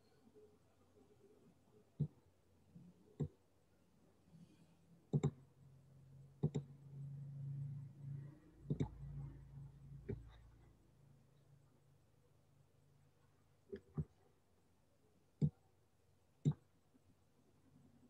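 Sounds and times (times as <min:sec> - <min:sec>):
computer mouse clicking: 0:03.2 - 0:03.4, 0:05.1 - 0:05.4, 0:06.4 - 0:06.7, 0:08.7 - 0:09.0
low hum: 0:05.7 - 0:12.2.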